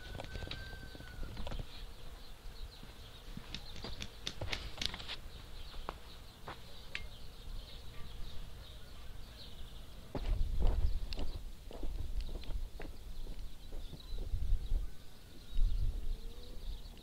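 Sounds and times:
sharp clicks and knocks of wooden tool: 3.5 - 5.1, 6.9 - 7.1.

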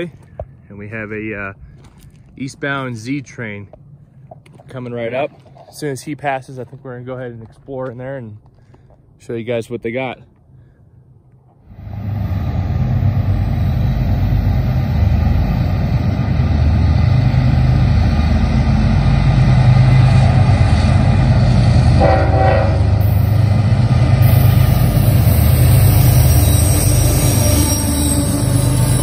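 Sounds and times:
diesel locomotive engines droning: 0.0 - 9.2, 10.3 - 29.0
train horn blast: 21.9 - 23.2.

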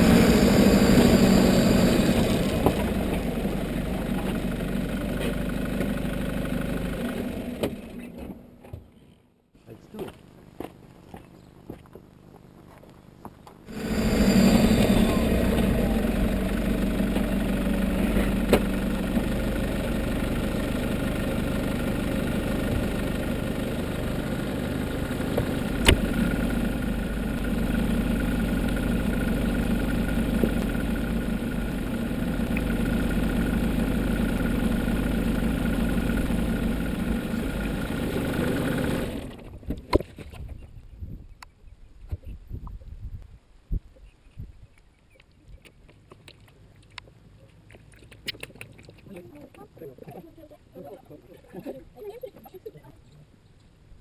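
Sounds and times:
car engine idling: 0.0 - 8.6, 13.7 - 39.6.

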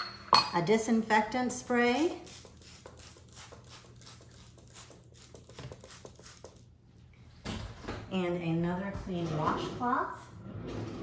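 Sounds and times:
spray bottle hissing sprays: 1.7 - 6.7.

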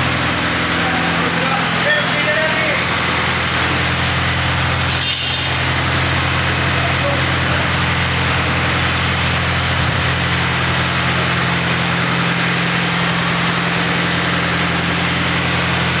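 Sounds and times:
machinery humming with high whine: 0.0 - 16.0.

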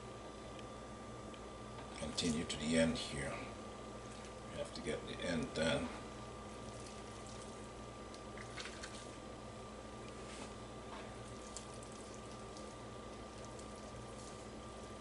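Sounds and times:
squishing of raw meat: 6.4 - 9.2, 11.0 - 15.0.

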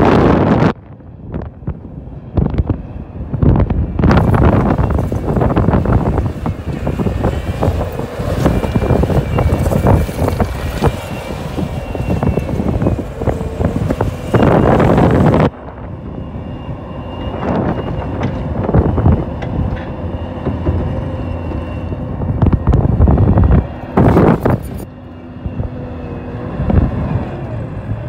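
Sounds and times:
clanking tracks: 0.2 - 28.0
diesel engine running: 0.3 - 28.0
knocks of moving dirt: 4.1 - 15.3.

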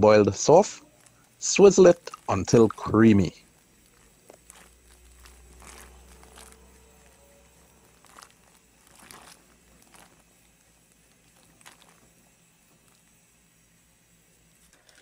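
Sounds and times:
pot of food bubbling: 0.5 - 14.6.

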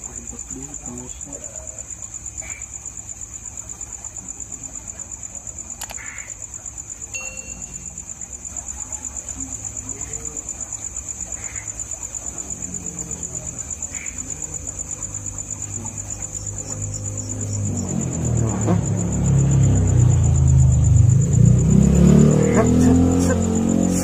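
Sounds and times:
night insects trilling: 0.0 - 24.0.

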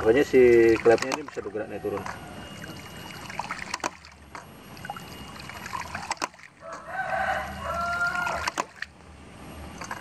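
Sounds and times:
water splashing: 0.0 - 9.0, 9.7 - 10.0
pump valve clacking: 0.2 - 2.2.

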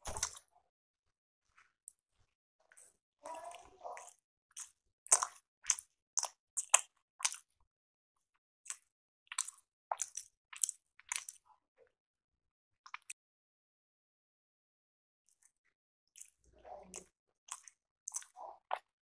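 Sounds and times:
chewing mouth sounds: 2.7 - 7.5, 8.7 - 11.4, 16.2 - 18.9.

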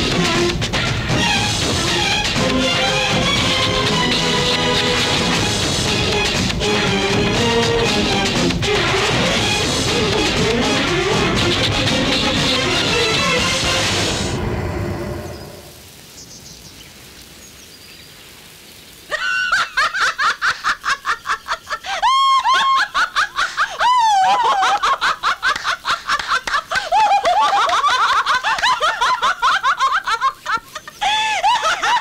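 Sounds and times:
music: 0.0 - 15.2
high-pitched cackling laugh: 19.1 - 32.0.

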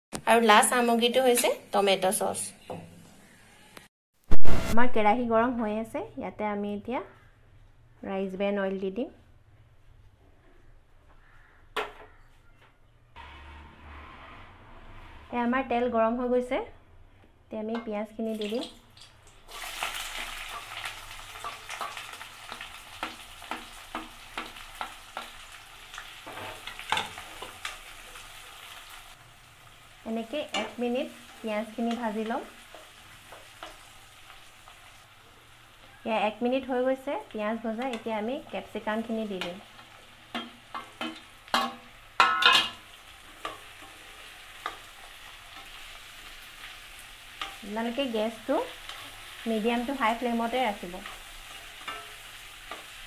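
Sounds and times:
onions sizzling in oil: 18.1 - 53.0
spatula scraping and clicking on pan: 20.2 - 27.8, 31.8 - 34.4, 39.3 - 46.0, 51.0 - 53.0.

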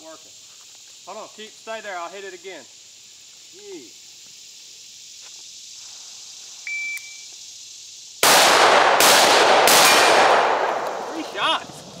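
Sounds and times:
shot timer beep: 6.7 - 7.2
rifle shots: 8.2 - 11.3.

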